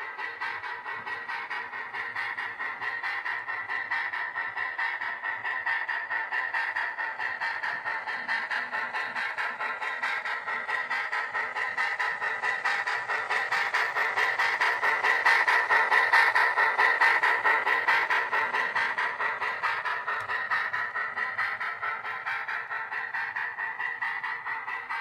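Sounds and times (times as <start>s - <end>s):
model steam locomotive chuffing: 0.0s - 25.0s.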